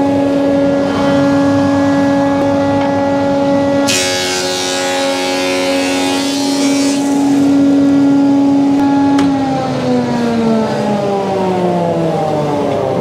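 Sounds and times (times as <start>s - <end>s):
thickness planer running: 0.0s - 10.8s
board hissing through cutters: 3.9s - 7.6s.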